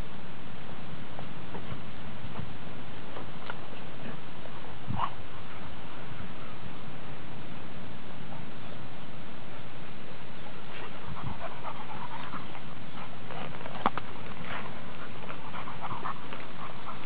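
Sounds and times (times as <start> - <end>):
dogs moving through brush: 10.7 - 17.0.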